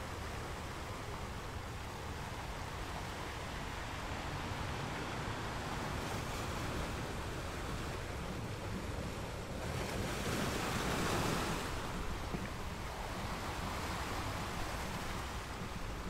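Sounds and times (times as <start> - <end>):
low rumble of surf: 0.0 - 16.0
ocean surf rushing: 0.0 - 16.0.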